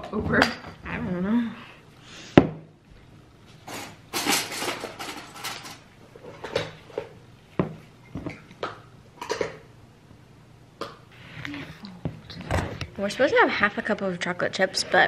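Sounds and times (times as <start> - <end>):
rustling and scraping: 3.5 - 8.4
dishes and utensils clinking: 3.6 - 8.5.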